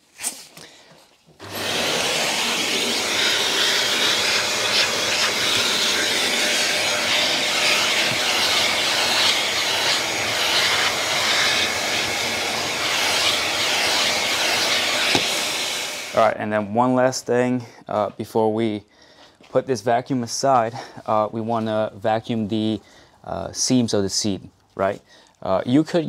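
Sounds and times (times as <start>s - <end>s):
vacuum cleaner running: 1.4s - 16.3s
vacuum hose sucking at carpet: 1.4s - 16.3s.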